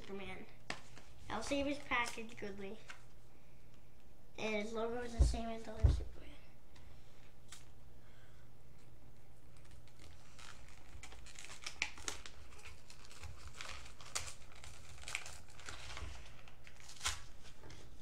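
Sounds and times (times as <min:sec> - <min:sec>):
plastic packaging crinkling and tearing: 0:00.8 - 0:03.0, 0:09.5 - 0:18.0.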